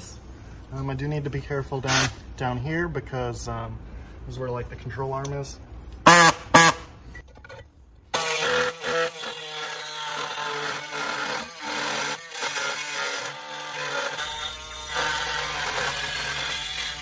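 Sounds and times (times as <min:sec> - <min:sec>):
air saw cutting steel: 0:01.8 - 0:02.2, 0:08.1 - 0:17.0.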